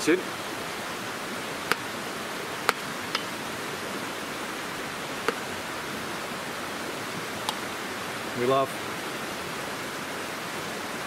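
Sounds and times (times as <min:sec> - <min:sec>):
stream rushing: 0:00.0 - 0:11.0.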